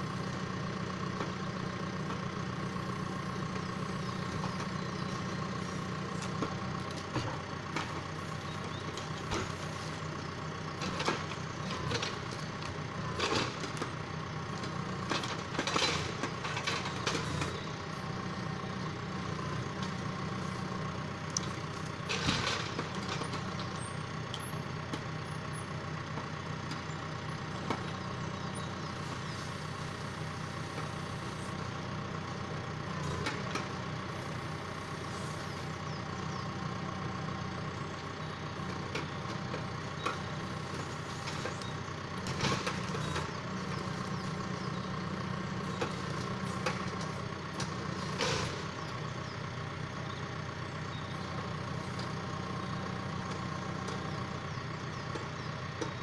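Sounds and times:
tractor diesel engine running: 0.0 - 56.0.

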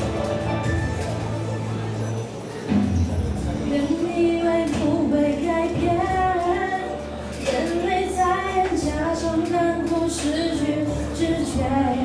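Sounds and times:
musical accompaniment: 0.0 - 12.0
woman singing pop song: 3.6 - 12.0.

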